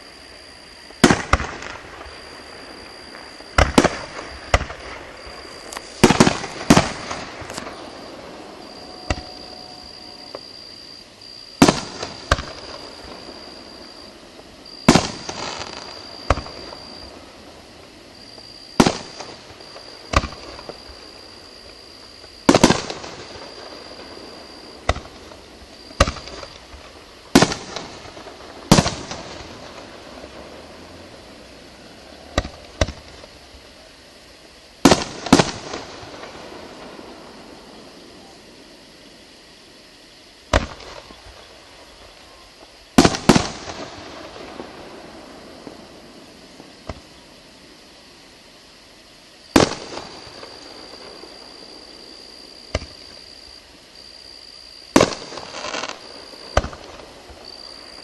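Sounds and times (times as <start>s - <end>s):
fireworks bangs with echo: 1.0s - 10.4s, 11.6s - 17.4s, 18.8s - 20.9s, 22.4s - 30.8s, 32.2s - 33.3s, 34.8s - 37.9s, 43.0s - 47.1s, 49.5s - 51.8s, 54.9s - 58.0s.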